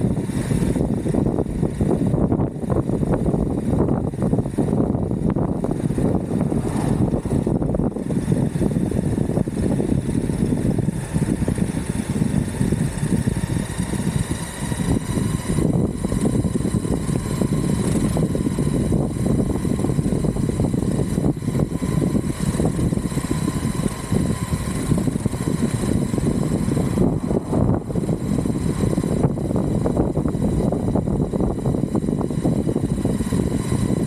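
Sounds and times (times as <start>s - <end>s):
electric motor whine: 0.0s - 34.0s
skateboard wheels rumbling: 5.2s - 8.8s, 13.0s - 32.0s.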